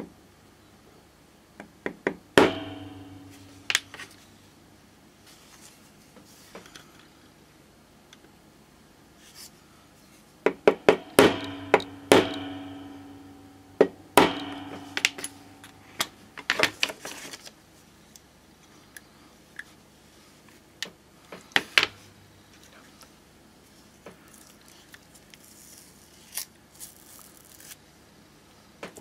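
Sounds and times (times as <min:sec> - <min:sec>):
hammer tapping metal punch: 0:02.4 - 0:04.0, 0:10.5 - 0:16.2.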